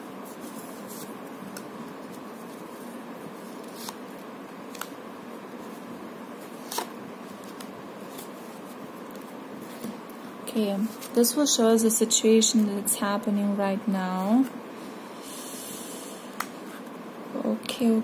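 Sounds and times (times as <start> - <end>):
room hiss: 0.0 - 18.0
cards clicking and snapping: 4.7 - 4.9.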